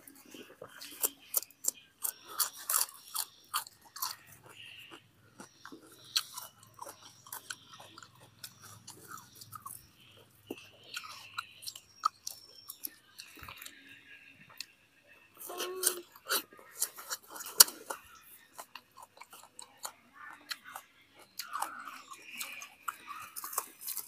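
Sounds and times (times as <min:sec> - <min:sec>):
wet smacking while chewing: 0:00.0 - 0:13.8, 0:15.8 - 0:24.0.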